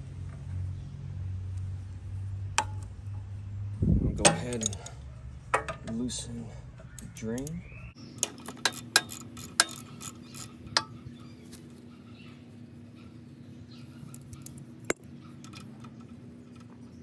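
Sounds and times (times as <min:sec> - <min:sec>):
socket ratchet clicking: 0:08.2 - 0:10.9.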